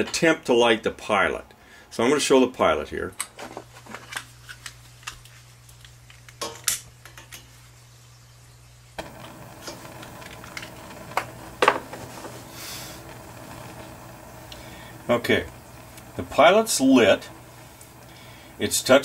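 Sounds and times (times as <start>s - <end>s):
pilot flame hissing: 9.0s - 19.0s.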